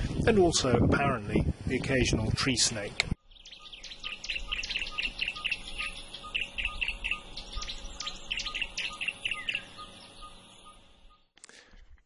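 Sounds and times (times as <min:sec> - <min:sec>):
birds chirping: 0:03.1 - 0:11.4.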